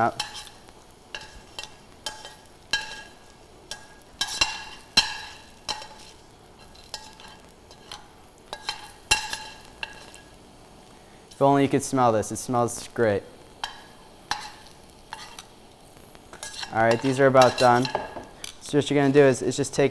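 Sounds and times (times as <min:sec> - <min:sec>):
metal tongs clinking on a pan: 0:00.0 - 0:10.4, 0:13.6 - 0:15.5, 0:16.3 - 0:19.2
chips sizzling in oil: 0:00.0 - 0:19.9.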